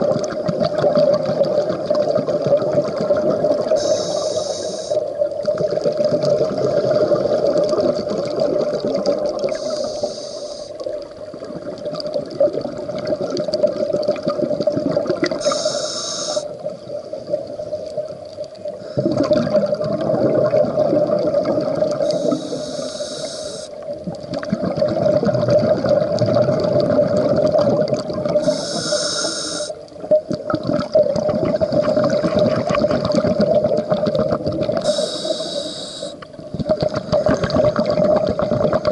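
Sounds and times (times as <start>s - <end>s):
exhaled bubbles gurgling: 0.0s - 38.9s
hissing regulator inhale: 3.7s - 5.1s, 9.5s - 10.9s, 15.4s - 16.6s, 22.0s - 23.8s, 28.4s - 29.8s, 34.8s - 36.3s.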